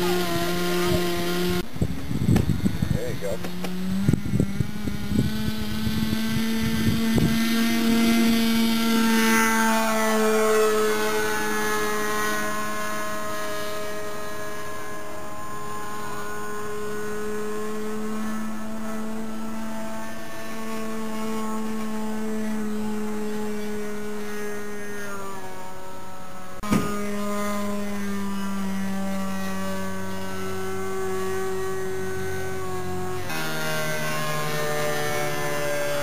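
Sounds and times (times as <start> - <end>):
model airplane engine buzzing: 0.0 - 36.0.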